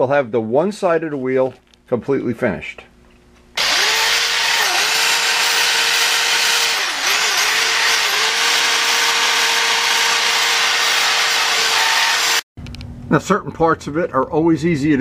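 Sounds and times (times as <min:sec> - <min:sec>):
electric sander whining: 0:03.6 - 0:12.4.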